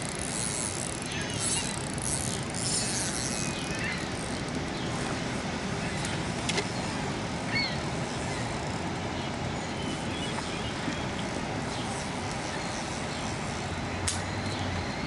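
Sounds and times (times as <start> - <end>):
rushing outdoor background noise: 0.0 - 15.0.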